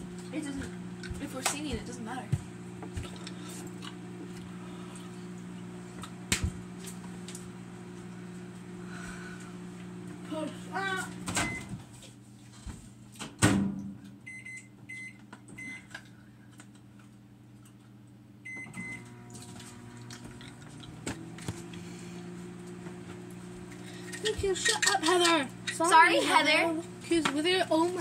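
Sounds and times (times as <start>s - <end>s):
microwave oven humming: 0.0s - 28.0s
keypad beeps: 14.3s - 15.9s, 18.4s - 19.0s.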